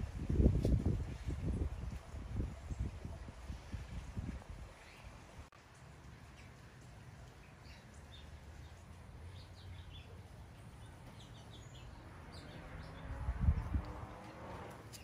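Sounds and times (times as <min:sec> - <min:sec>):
small birds chirping: 0:03.9 - 0:15.0.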